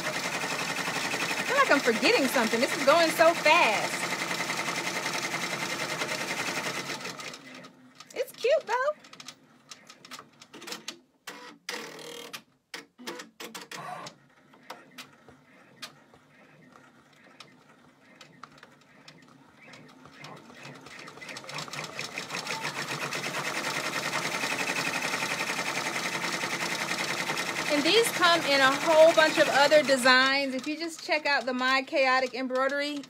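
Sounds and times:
embroidery machine stitching: 0.0 - 33.0.

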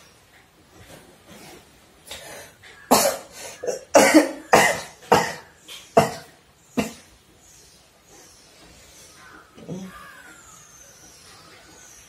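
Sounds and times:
boy coughing: 2.9 - 7.1.

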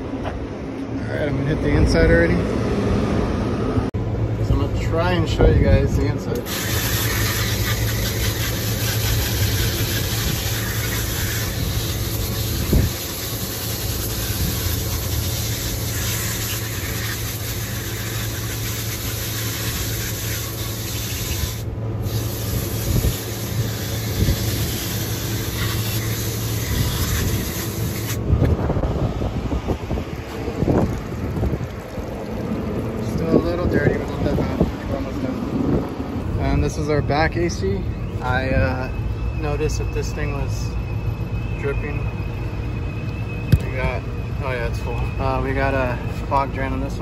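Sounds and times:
steady low hum: 0.0 - 47.0
hose spraying water: 6.4 - 28.2.

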